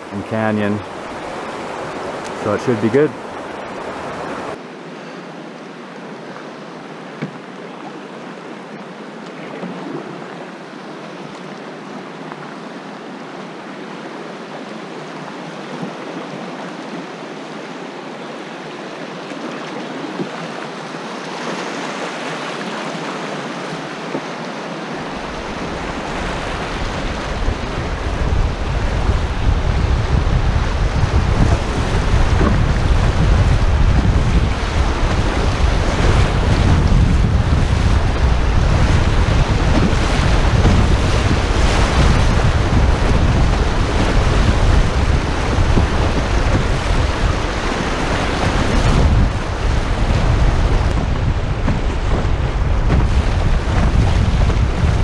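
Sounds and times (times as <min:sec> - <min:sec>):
wind buffeting microphone: 0:00.0 - 0:04.6, 0:25.0 - 0:55.0
rushing whitewater: 0:00.0 - 0:55.0.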